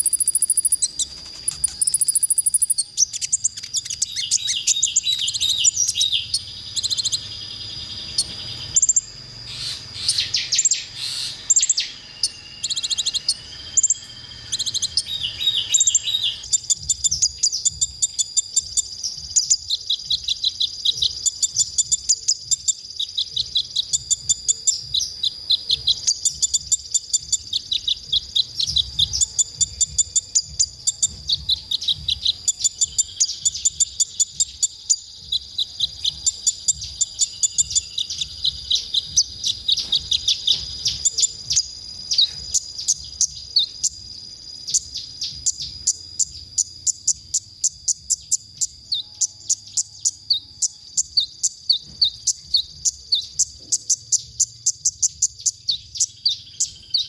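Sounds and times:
bird twittering trills: 0:00.0 - 0:57.0
quick high bird chirps: 0:00.0 - 0:57.0
thin high tone: 0:10.8 - 0:16.5.

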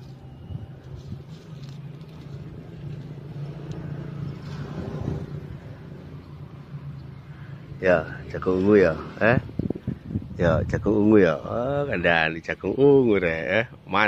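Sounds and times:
corn husk rustling and tearing: 0:00.0 - 0:05.4.

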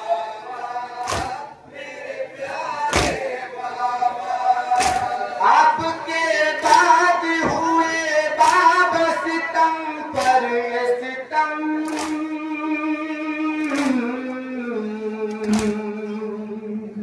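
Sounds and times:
men chanting through a microphone: 0:00.0 - 0:17.0
chest-beating slaps: 0:01.0 - 0:01.4, 0:02.9 - 0:03.2, 0:04.8 - 0:05.2, 0:10.1 - 0:10.4, 0:11.8 - 0:12.2, 0:13.6 - 0:14.0.

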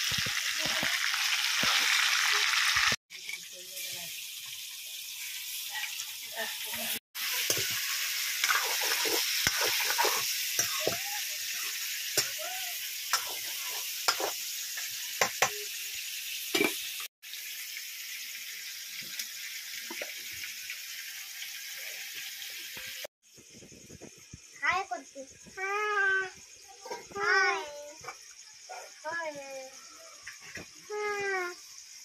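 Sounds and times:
food sizzling in hot oil: 0:00.0 - 0:32.0
metal spatula scraping pan: 0:07.3 - 0:11.0, 0:13.1 - 0:14.4.

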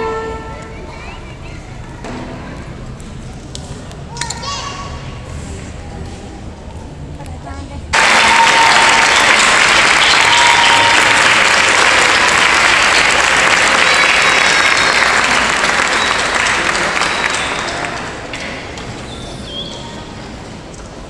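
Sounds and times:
audience applauding: 0:08.0 - 0:19.0.

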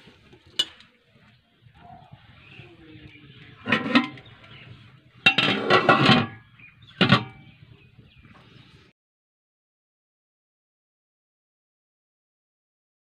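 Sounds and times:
metal plate clanking on pot: 0:03.6 - 0:04.3, 0:05.2 - 0:06.4, 0:07.0 - 0:07.4.

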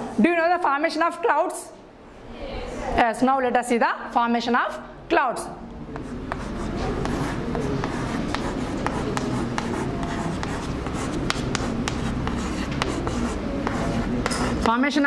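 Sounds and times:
low room hum: 0:00.0 - 0:15.0
chalk tapping and scratching: 0:05.9 - 0:14.8.

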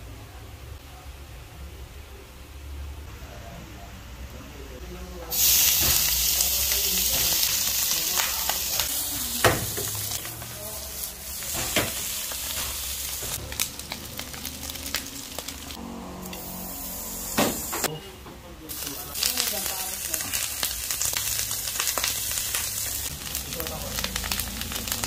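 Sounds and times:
meat sizzling in hot oil: 0:05.3 - 0:17.9, 0:18.7 - 0:25.0.

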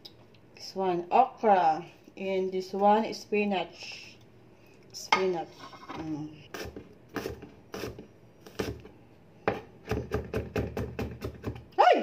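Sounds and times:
knife chopping on cutting board: 0:09.5 - 0:11.6.

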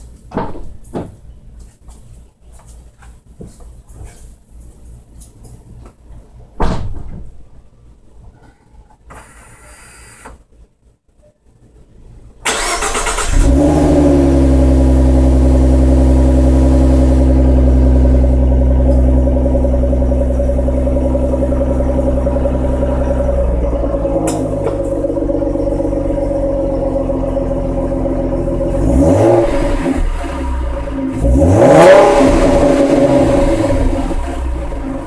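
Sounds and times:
car engine revving and idling: 0:12.6 - 0:35.0.

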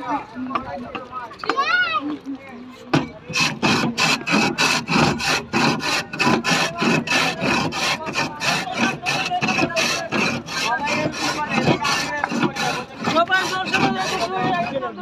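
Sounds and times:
blade scraping ice: 0:03.3 - 0:15.0.

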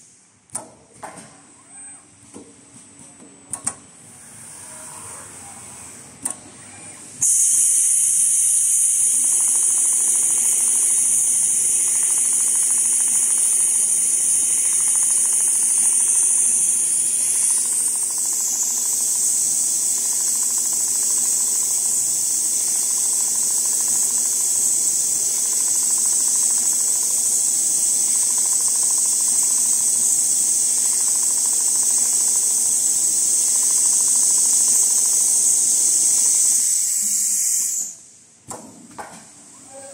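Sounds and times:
sewing machine running: 0:07.6 - 0:35.6.

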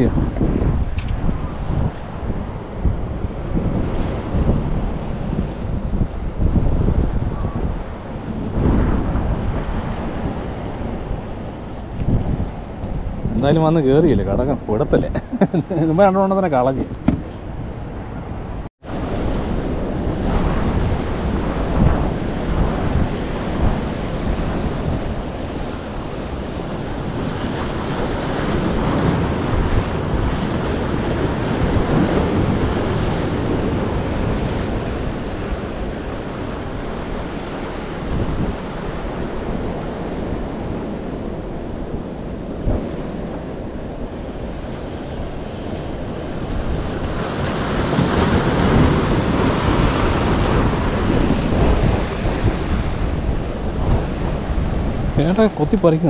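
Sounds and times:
sea waves breaking on rocks: 0:18.8 - 0:56.0.

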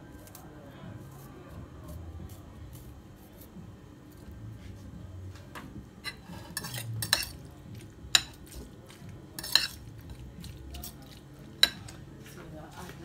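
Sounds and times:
fork clinking against ceramic bowl: 0:06.0 - 0:07.4, 0:08.1 - 0:08.6, 0:09.4 - 0:10.1, 0:10.7 - 0:12.0
fork scraping in bowl: 0:06.0 - 0:07.4, 0:09.4 - 0:09.9.

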